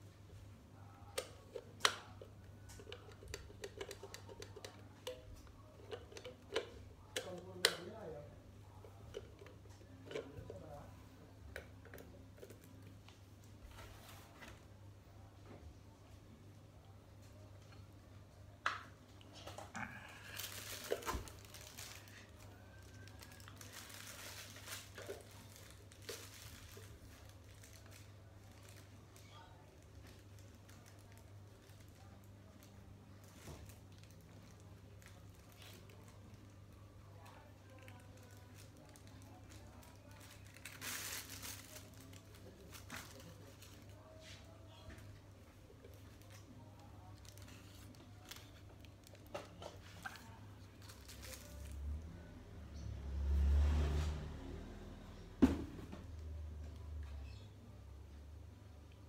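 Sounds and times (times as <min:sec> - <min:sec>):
plastic packaging crinkling: 0:19.9 - 0:36.6, 0:37.2 - 0:44.2, 0:45.7 - 0:52.2.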